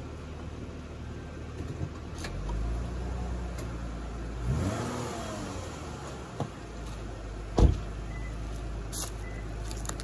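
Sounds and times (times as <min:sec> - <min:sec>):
car engine idling and revving: 0:00.0 - 0:10.0
sharp thump: 0:07.5 - 0:07.9.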